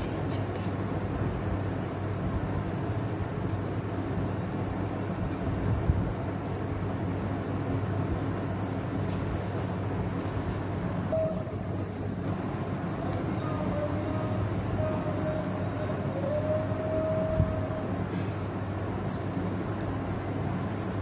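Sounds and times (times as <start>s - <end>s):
low hum: 1.0s - 21.0s.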